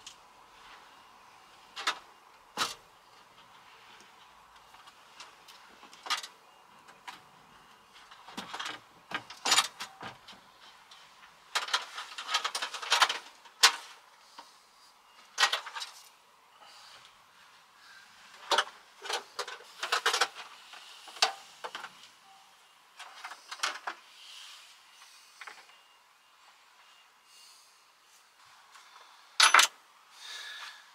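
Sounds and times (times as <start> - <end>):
metal parts clicking and rattling: 8.1 - 10.3, 11.5 - 13.9, 18.4 - 20.5, 29.4 - 29.7.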